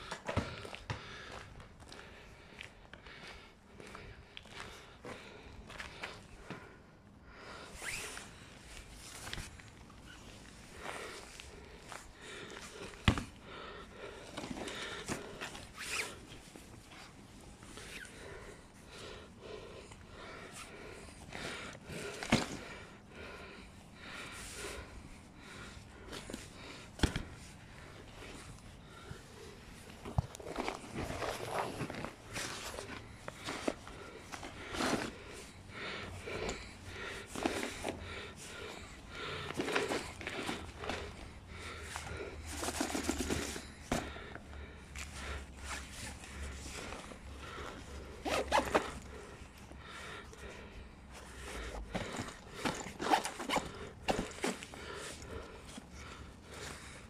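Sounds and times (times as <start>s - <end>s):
rustling handling noise: 25.5s - 57.0s
bag fabric rustling: 29.9s - 35.5s
backpack zipper: 48.2s - 49.0s.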